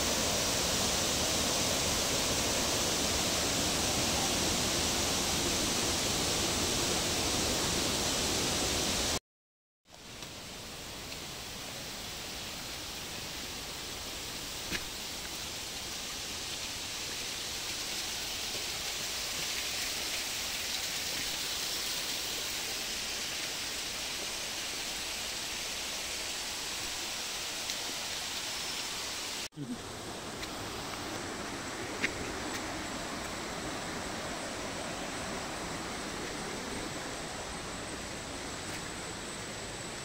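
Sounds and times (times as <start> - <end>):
stream water rushing: 0.0 - 9.2, 10.4 - 40.0.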